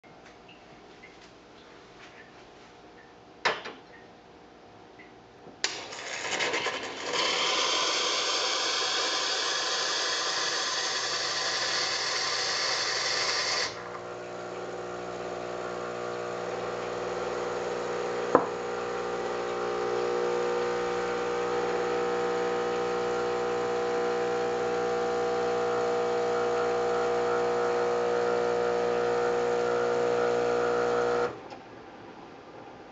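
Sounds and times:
espresso machine humming: 5.7 - 31.4
hot water hissing into a cup: 5.7 - 31.4.

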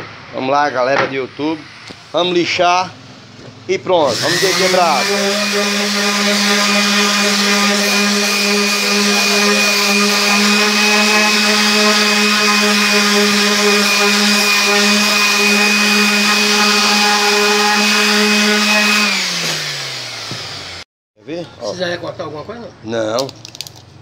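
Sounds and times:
orbital sander running: 4.1 - 20.8.

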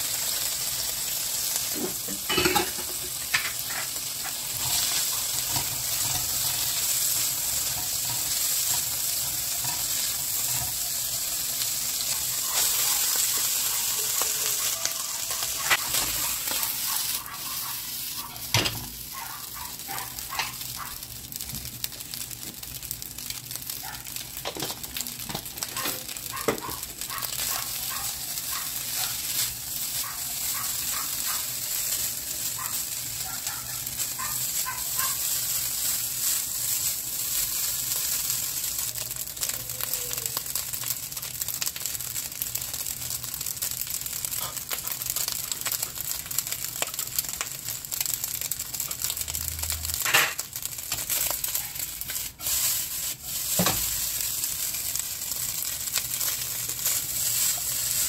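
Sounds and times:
rice sizzling in a wok: 0.0 - 58.0
spatula scraping a wok: 1.6 - 18.5, 50.0 - 58.0.

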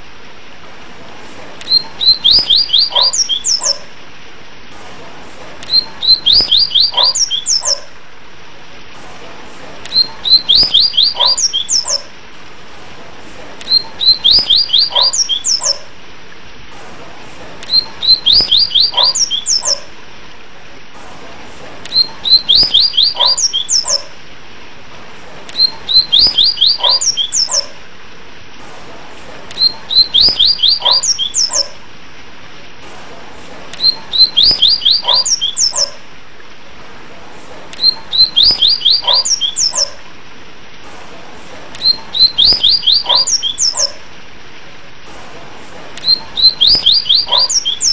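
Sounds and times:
steady hiss: 0.0 - 47.9
bird whistled song: 1.6 - 3.8, 5.7 - 7.9, 9.9 - 12.1, 13.6 - 15.9, 17.6 - 19.9, 21.9 - 24.1, 25.5 - 27.8, 29.6 - 31.8, 33.8 - 36.0, 37.8 - 40.0, 41.8 - 44.0, 46.0 - 47.9.

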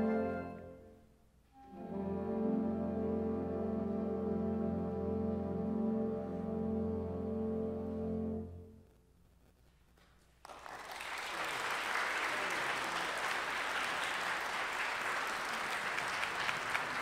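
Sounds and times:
audience applause: 10.4 - 17.0.

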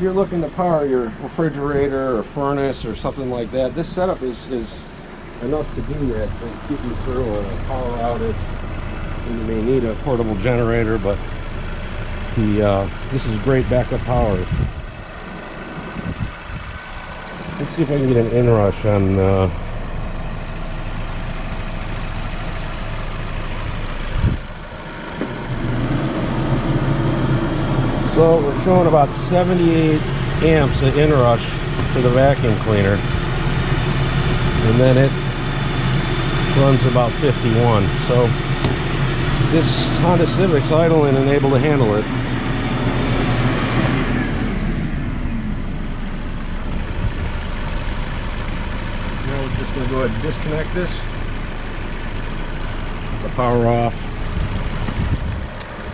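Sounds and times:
car engine idling: 0.0 - 55.9
vacuum cleaner running: 25.2 - 29.2, 38.2 - 44.9
vacuum cleaner winding down: 25.2 - 29.5
low knock: 38.6 - 38.9.

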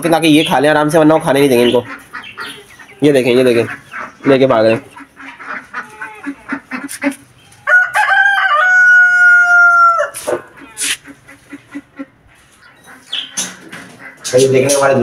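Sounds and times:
hens clucking: 0.0 - 15.0
rooster crowing: 7.6 - 10.7.

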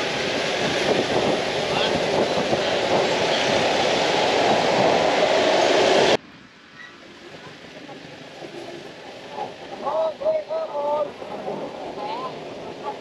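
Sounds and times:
busy road traffic: 0.0 - 13.0.

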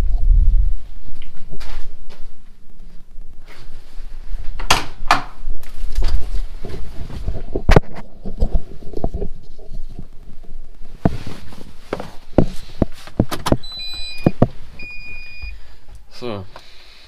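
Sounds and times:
electronic dashboard beep: 13.6 - 15.6.

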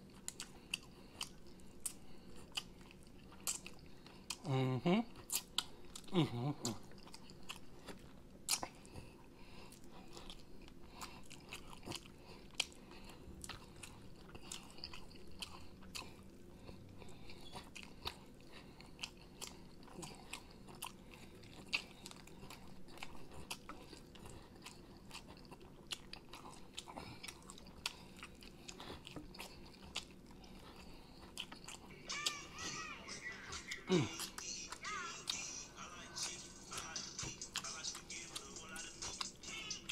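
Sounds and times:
chewing and biting: 0.0 - 4.5, 5.1 - 32.4.

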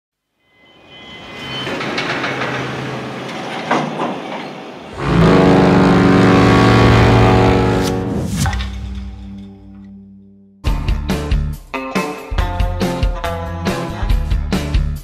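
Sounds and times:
rumbling clattering industrial noise: 1.6 - 9.5
deep ship's horn blast: 4.9 - 8.5.

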